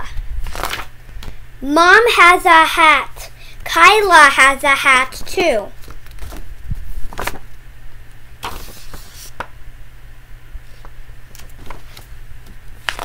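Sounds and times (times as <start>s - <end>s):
steady low hum: 0.0s - 13.0s
book pages turning: 0.4s - 1.4s, 5.8s - 7.4s, 8.4s - 9.5s, 10.7s - 13.0s.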